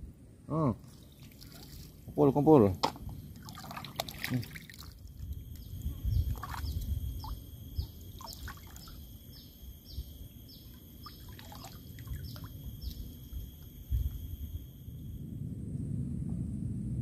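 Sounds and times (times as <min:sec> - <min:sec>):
low rumble of water: 0:00.0 - 0:17.0
wind: 0:00.0 - 0:17.0
high insect whine: 0:00.5 - 0:17.0
bird chirps: 0:05.5 - 0:14.5.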